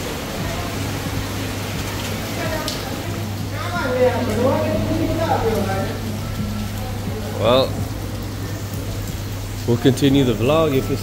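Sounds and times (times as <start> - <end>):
heavy rain pouring: 0.0 - 11.0
low steady hum: 4.3 - 10.4.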